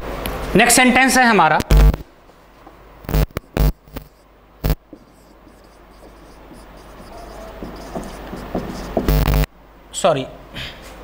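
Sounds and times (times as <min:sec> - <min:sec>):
marker scratching on whiteboard: 0:04.8 - 0:09.2
marker squeaking on whiteboard: 0:04.8 - 0:09.2.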